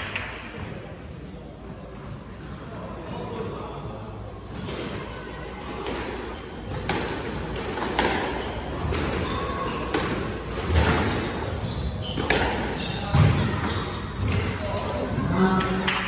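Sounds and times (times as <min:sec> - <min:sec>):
shoes squeaking on wooden floor: 0:07.3 - 0:14.4.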